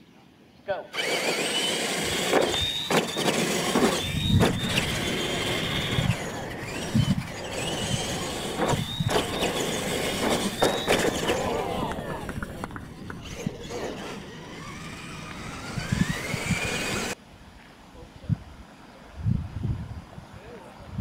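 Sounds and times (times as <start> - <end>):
electric motors whining: 0.9 - 17.2
trucks knocking on track: 1.3 - 17.2.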